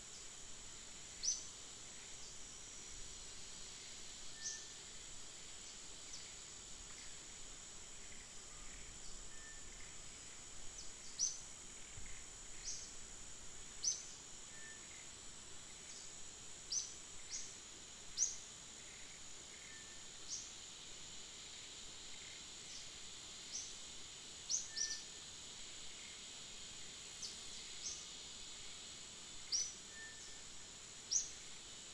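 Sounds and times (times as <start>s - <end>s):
high insect drone: 0.0s - 31.9s
small birds chirping: 1.2s - 1.5s, 29.4s - 30.5s.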